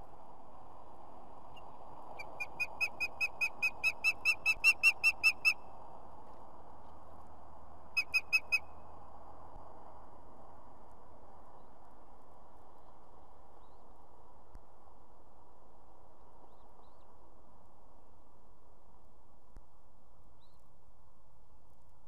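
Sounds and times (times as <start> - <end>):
osprey whistled calls: 1.6 - 5.6, 8.0 - 8.6.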